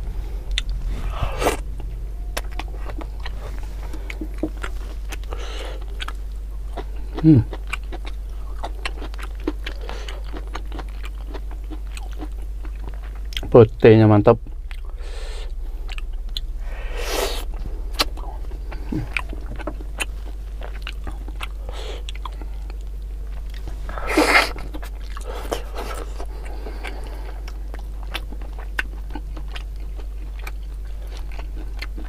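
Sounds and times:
low electrical hum: 0.0s - 32.0s
wet chewing and lip smacking: 2.4s - 13.5s, 17.9s - 32.0s.

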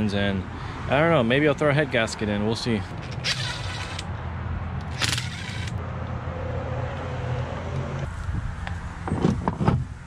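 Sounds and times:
impact driver whirring: 3.0s - 4.0s, 4.8s - 5.8s.

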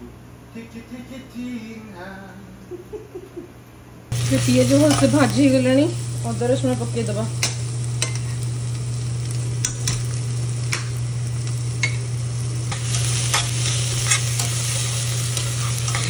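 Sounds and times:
paste sizzling in oil: 4.1s - 16.0s
metal spatula scraping pot: 12.7s - 16.0s.

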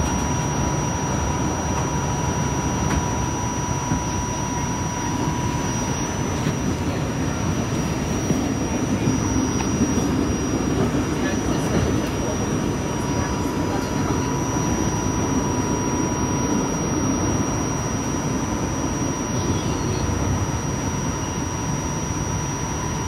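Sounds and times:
thin high whine: 0.0s - 23.0s
faint tone: 1.8s - 23.0s
light rail rumbling: 3.9s - 21.0s.

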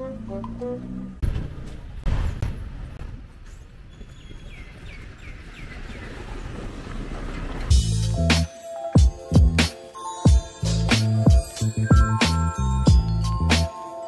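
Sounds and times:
traffic rumble: 0.0s - 8.5s
wind: 0.0s - 13.8s
bird chirping: 3.8s - 6.7s.

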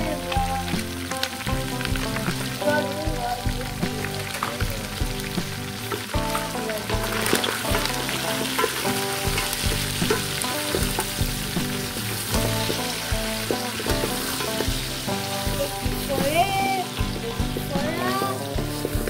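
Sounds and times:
meat and vegetables sizzling: 0.0s - 19.0s
wooden spoon knocking and scraping pot: 5.0s - 19.0s.

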